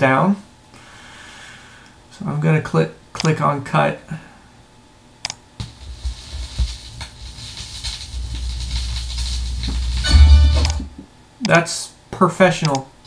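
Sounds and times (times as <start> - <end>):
vinyl surface hiss: 5.6 - 11.1
low rumble: 7.2 - 11.0.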